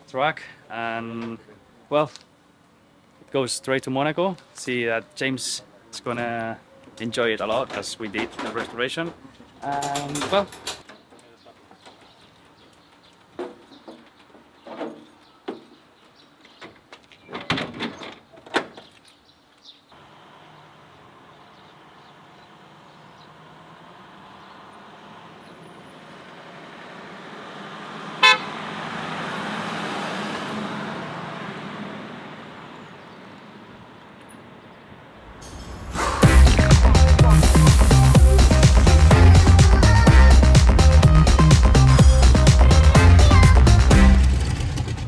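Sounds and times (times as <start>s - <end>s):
knocks and clanks: 7.4s - 11.0s, 13.4s - 15.7s
car and truck driving past: 20.0s - 39.4s, 40.4s - 45.0s
short horn toot: 28.2s - 28.5s.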